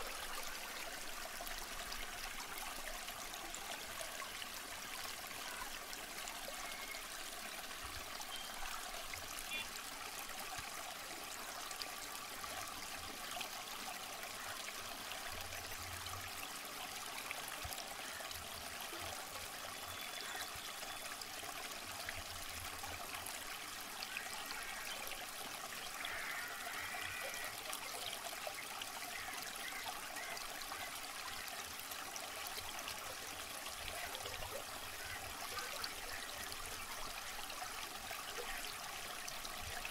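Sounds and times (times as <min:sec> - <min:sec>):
water babbling in a canal: 0:00.0 - 0:39.9.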